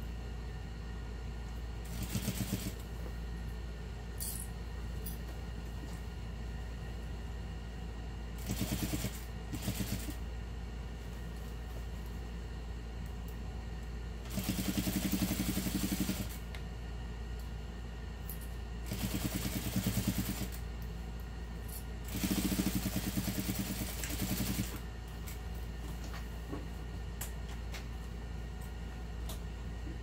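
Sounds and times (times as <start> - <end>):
sewing machine stitching: 1.9 - 2.8.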